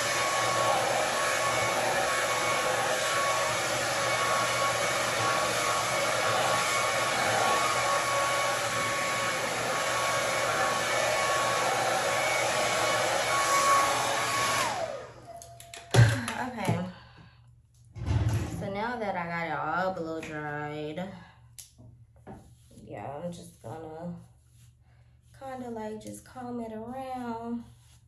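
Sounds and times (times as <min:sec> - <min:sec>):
hair dryer blowing: 0:00.0 - 0:17.0.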